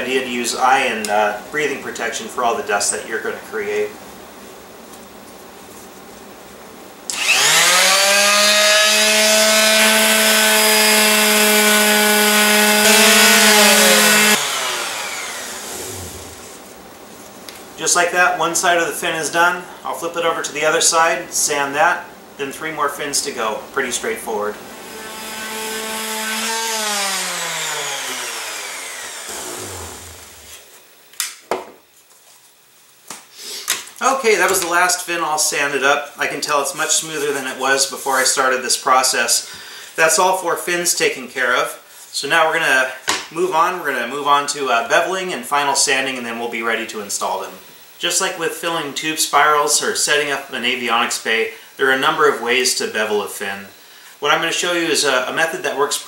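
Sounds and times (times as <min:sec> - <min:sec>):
electric sander motor whine: 0:07.1 - 0:16.7, 0:24.8 - 0:30.6.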